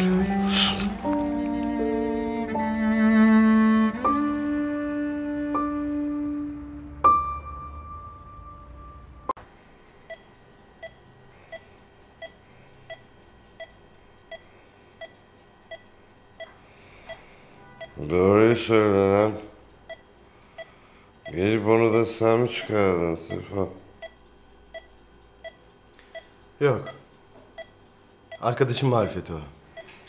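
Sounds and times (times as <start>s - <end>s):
slow sad cello string music: 0.0s - 9.3s
patient monitor beeping: 10.0s - 30.0s.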